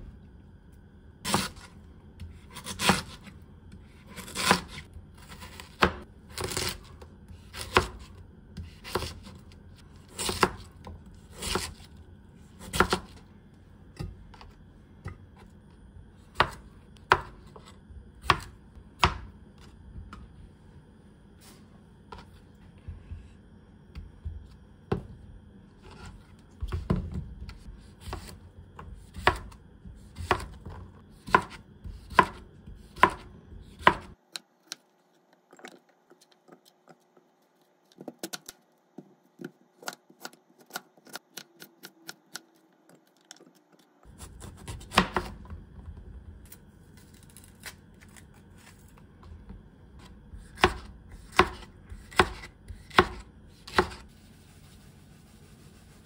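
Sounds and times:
knife slicing on plastic cutting board: 50.0 - 54.1.

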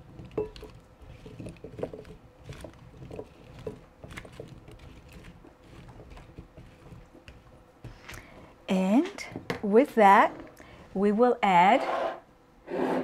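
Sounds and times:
potatoes tossed in glass bowl: 0.0 - 7.5.

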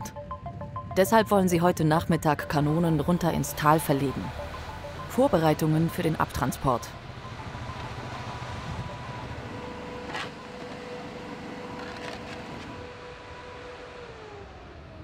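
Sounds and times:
low engine-like throb: 0.1 - 10.1.

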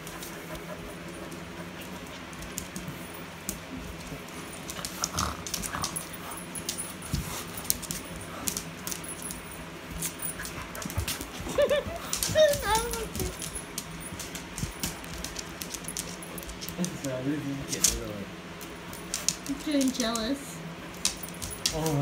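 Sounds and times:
dog claws clicking on wood: 1.8 - 9.4, 12.0 - 22.0
collar tags jingling: 4.3 - 17.2, 18.6 - 22.0.

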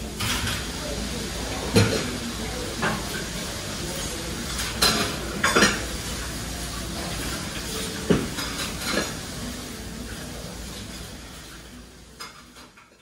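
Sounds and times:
dishes and cutlery clinking: 0.0 - 0.8, 1.5 - 13.0.

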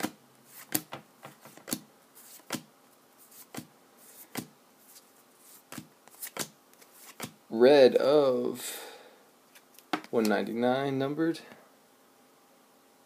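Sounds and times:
cards flicking: 0.0 - 2.7, 5.5 - 7.4.

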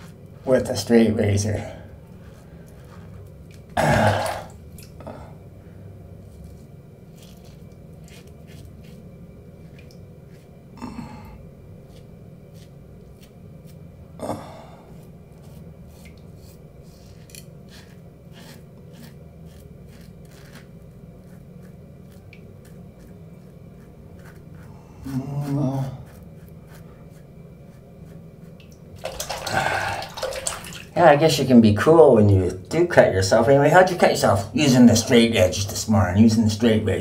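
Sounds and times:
low steady hum: 0.0 - 37.0
razor scraping stubble: 6.2 - 10.5, 11.8 - 13.8, 15.4 - 28.6.

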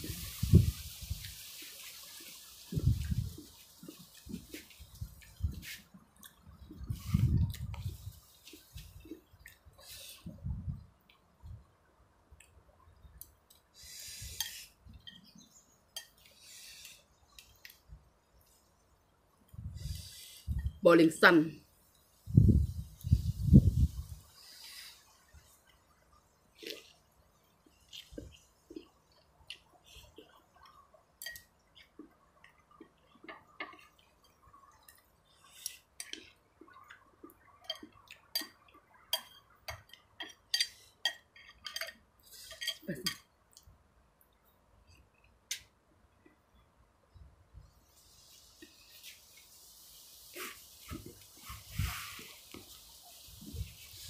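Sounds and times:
cutlery clinking on ceramic bowl: 37.6 - 43.3.

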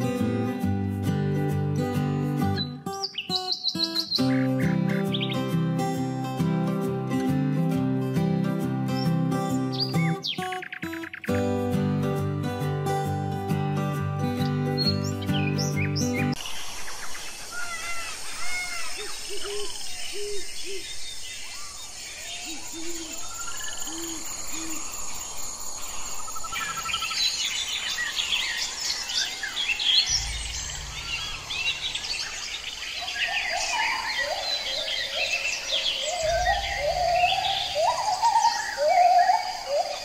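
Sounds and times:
birds chirping and singing: 2.1 - 7.4, 8.1 - 12.2, 12.8 - 40.0
low rumble: 30.1 - 32.8.

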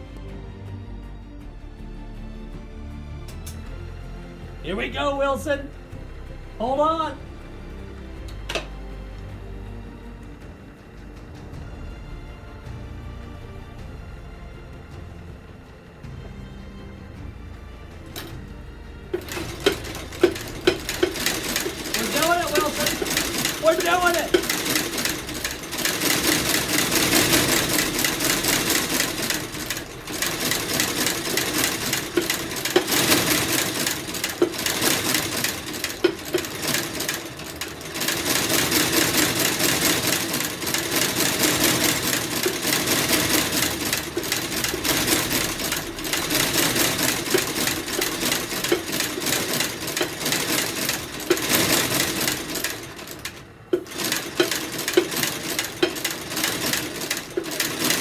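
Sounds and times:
stitching machine running: 18.0 - 18.4, 19.1 - 58.0.

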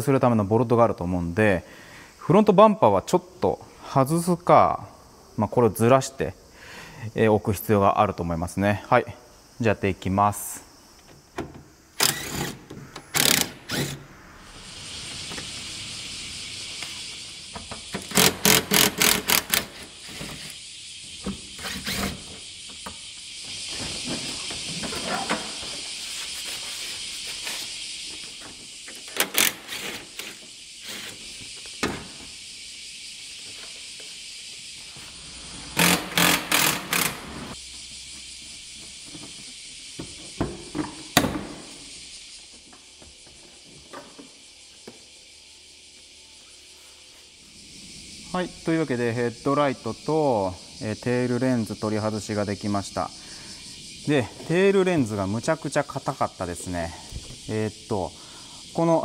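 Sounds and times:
background hiss: 0.0 - 59.0
electric ratchet clicking: 12.0 - 14.0, 17.8 - 23.4, 29.0 - 31.2, 35.7 - 37.6.

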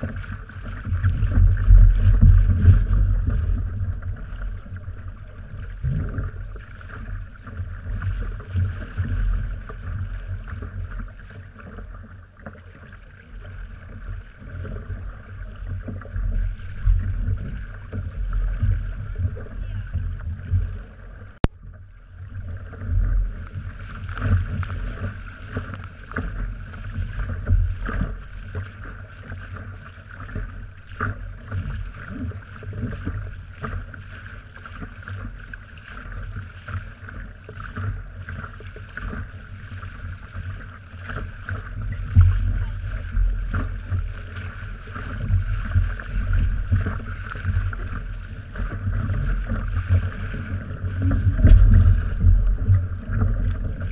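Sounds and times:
wind buffeting microphone: 0.0 - 10.6, 41.4 - 53.9.

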